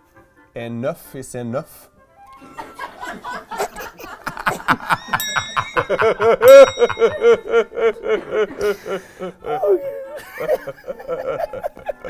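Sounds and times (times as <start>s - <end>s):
men laughing hard: 2.4s - 12.0s
high ringing tone: 4.9s - 7.7s.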